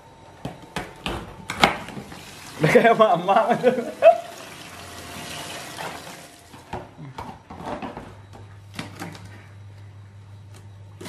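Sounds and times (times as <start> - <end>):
tap water running into basin: 1.9 - 6.6.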